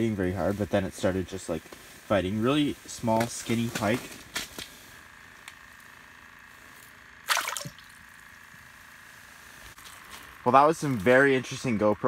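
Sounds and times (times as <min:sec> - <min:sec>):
fish splashing into water: 0:07.2 - 0:08.0.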